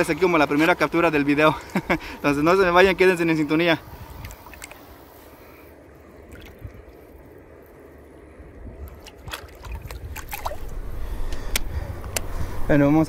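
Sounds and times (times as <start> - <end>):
water sloshing and dripping: 4.0 - 5.4, 6.0 - 11.4
small water splashes: 4.2 - 5.0, 6.2 - 7.3, 8.6 - 10.8.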